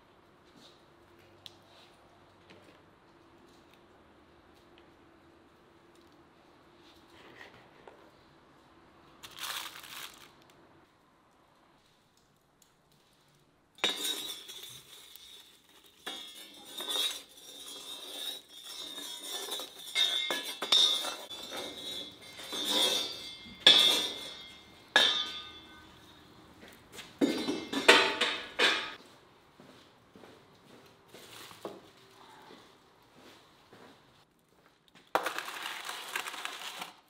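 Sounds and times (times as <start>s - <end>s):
sharp clinks and knocks: 13.8s - 26.3s.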